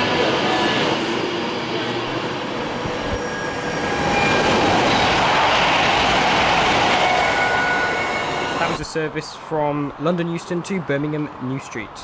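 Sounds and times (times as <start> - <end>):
train passing at speed: 0.0 - 9.2.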